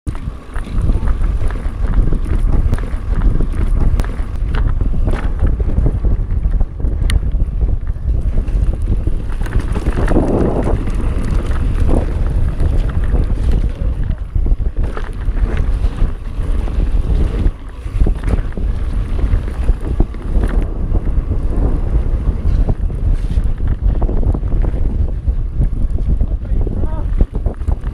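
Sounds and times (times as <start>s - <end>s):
bike rattling clicks: 0.1s - 25.0s
tyres rumbling on gravel: 0.1s - 27.9s
wind buffeting microphone: 0.1s - 27.9s
tyres rolling over stones: 8.4s - 21.0s.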